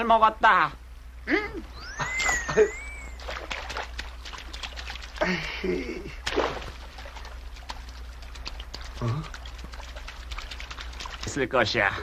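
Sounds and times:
water splashing from wading: 2.2 - 5.4, 6.2 - 11.4.

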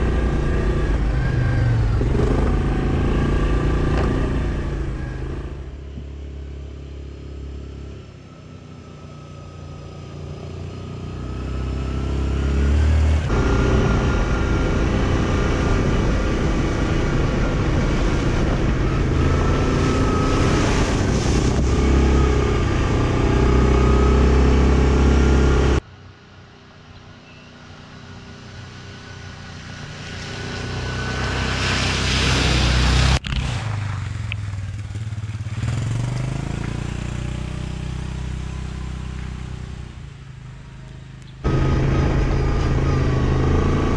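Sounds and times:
atv engine revving: 0.0 - 5.8, 8.7 - 25.8, 41.4 - 43.9
water spraying: 19.6 - 22.1, 30.2 - 33.6.

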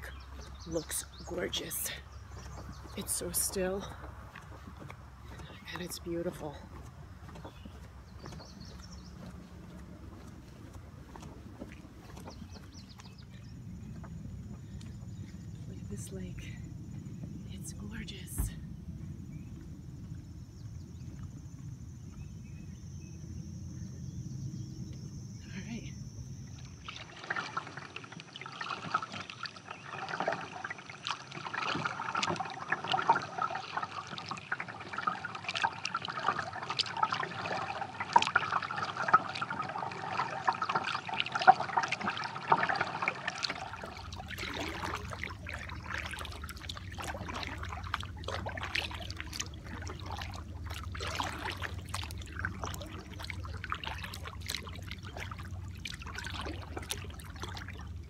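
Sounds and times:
water dripping off paddle: 0.0 - 18.6, 26.5 - 58.0
low hum: 0.0 - 27.2, 43.3 - 58.0
kayak paddle strokes in water: 0.0 - 58.0.

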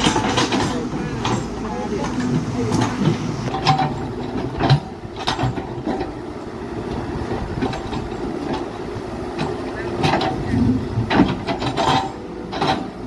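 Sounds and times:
metal clanks of bucket: 0.0 - 6.1, 9.4 - 13.0
excavator diesel engine running: 0.0 - 13.0.

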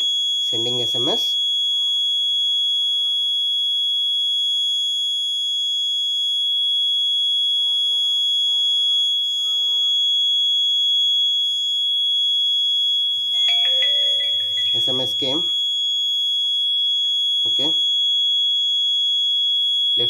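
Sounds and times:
high-pitched alarm buzzer tone: 7.3 - 19.7.

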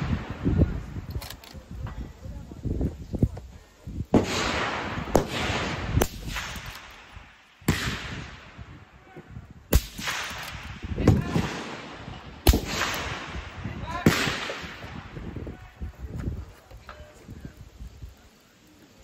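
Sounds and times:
rifle shots with rolling echo: 4.1 - 8.9, 9.7 - 15.4.

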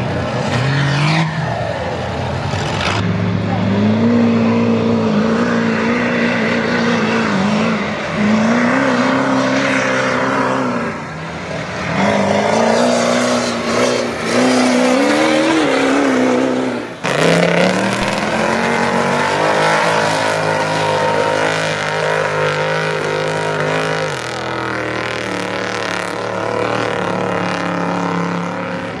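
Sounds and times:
truck engines revving in mud: 0.0 - 29.0
truck engine running steadily: 1.4 - 5.2.

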